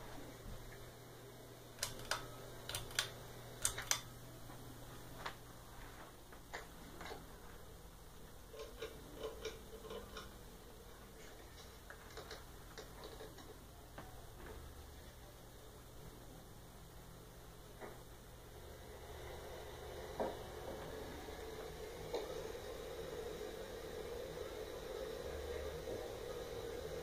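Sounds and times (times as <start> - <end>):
ceiling fan hum: 0.0 - 27.0
fan clicks and ticks: 1.7 - 4.2, 8.4 - 10.6.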